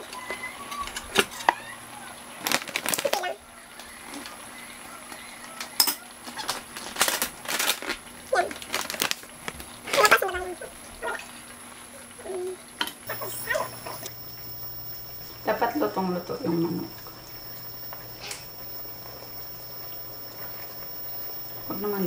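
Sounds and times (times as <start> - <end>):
plastic pouch crinkling: 6.4 - 10.1.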